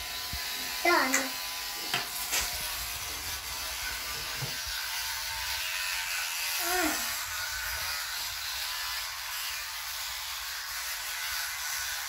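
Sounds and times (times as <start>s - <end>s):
electric toothbrushes buzzing: 0.0s - 12.0s
child vocal sound: 6.6s - 7.2s.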